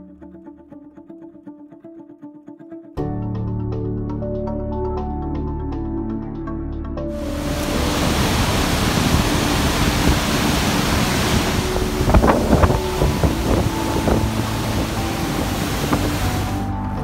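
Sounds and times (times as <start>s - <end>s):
roar of white water: 7.2s - 16.8s
water splashes: 7.2s - 16.8s.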